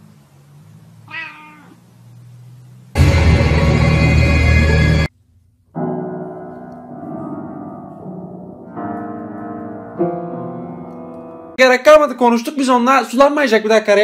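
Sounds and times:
loud sound cut off: 0:02.9 - 0:05.1
piano keys pressed by cat: 0:05.8 - 0:11.6.

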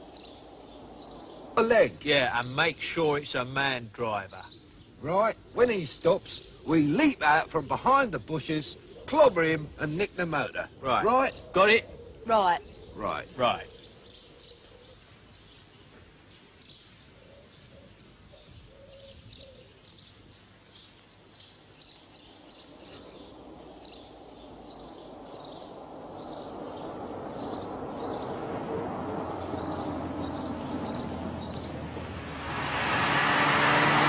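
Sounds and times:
small birds chirping: 0:00.0 - 0:33.6
approaching car engine: 0:22.3 - 0:34.0.

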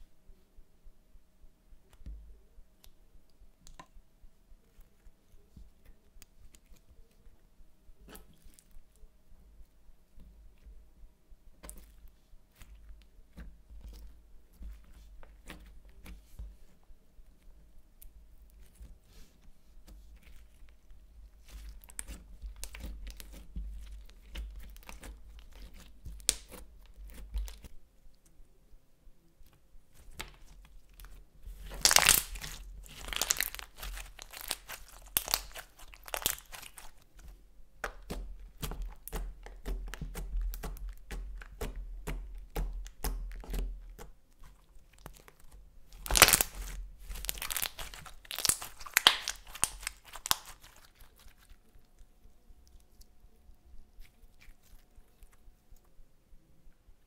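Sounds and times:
slime crackling and popping: 0:20.2 - 0:27.7, 0:30.0 - 0:51.6.

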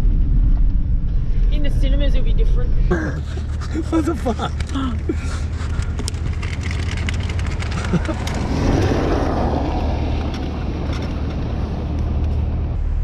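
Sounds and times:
engine and road hum: 0:00.0 - 0:13.0
rushing noise: 0:00.0 - 0:13.0.

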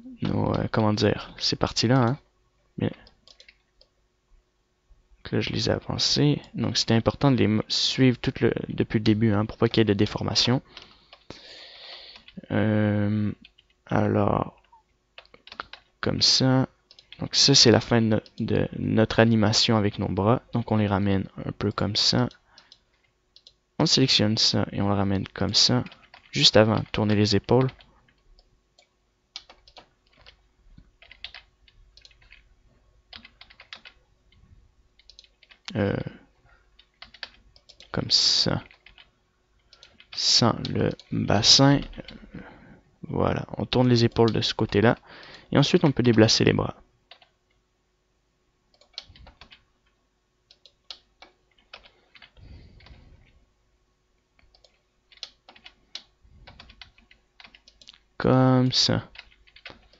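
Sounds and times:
faint keyboard keystrokes: 0:03.0 - 0:03.9, 0:35.0 - 0:35.7, 0:48.7 - 0:53.4, 0:54.4 - 0:58.1
keyboard and mouse clicking: 0:03.0 - 0:04.0, 0:12.1 - 0:12.4, 0:14.6 - 0:15.9, 0:16.9 - 0:17.2, 0:22.3 - 0:23.6, 0:25.8 - 0:30.4, 0:31.0 - 0:32.5, 0:33.1 - 0:34.4, 0:35.0 - 0:35.8, 0:36.8 - 0:38.0, 0:38.6 - 0:41.1, 0:47.1 - 0:47.4, 0:48.7 - 0:53.0, 0:54.4 - 0:58.1, 0:59.1 - 0:59.9.

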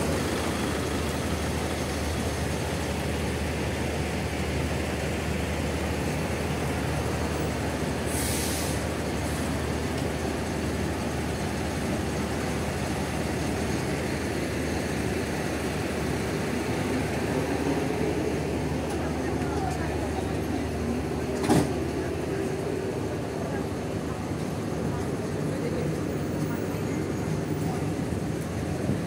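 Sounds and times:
diesel bus engine running: 0:00.0 - 0:29.0
burst of hiss: 0:08.0 - 0:09.0.

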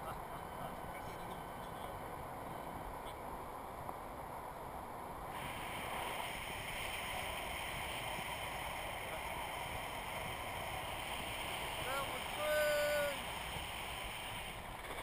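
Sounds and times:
rush of air over camera: 0:04.7 - 0:15.0.

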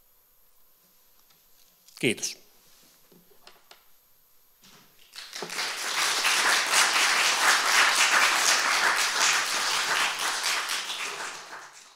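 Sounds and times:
audience applauding: 0:05.0 - 0:11.9.

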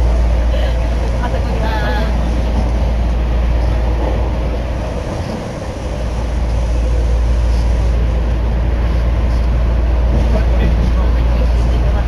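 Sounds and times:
subway train rumbling in tunnel: 0:00.0 - 0:12.0.

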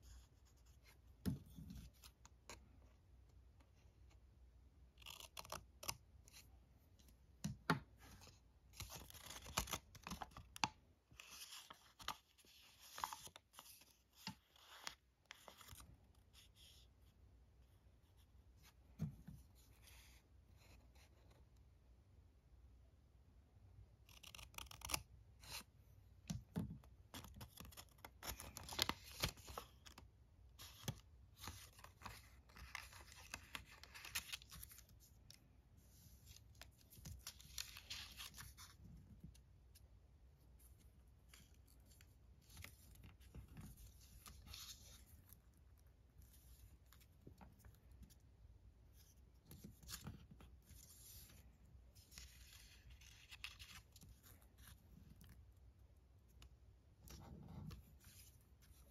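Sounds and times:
paper rustling and folding: 0:07.9 - 0:16.9, 0:26.8 - 0:39.8, 0:48.9 - 0:55.5.

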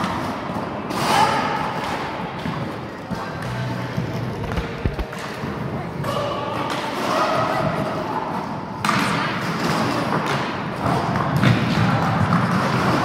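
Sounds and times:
skate wheels rumbling on rink: 0:00.0 - 0:13.0.

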